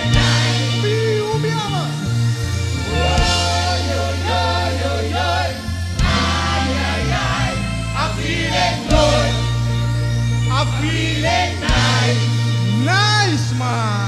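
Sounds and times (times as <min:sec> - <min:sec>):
group of voices singing: 0:00.0 - 0:01.0, 0:02.7 - 0:12.8
live band with heavy bass: 0:00.0 - 0:14.0.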